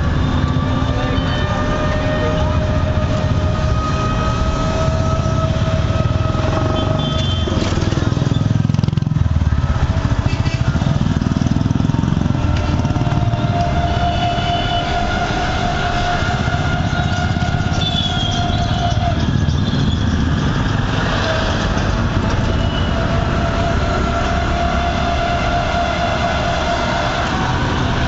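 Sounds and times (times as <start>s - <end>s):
motorcycle riding alongside: 0.0s - 28.0s
vehicle engine rumble: 0.0s - 28.0s.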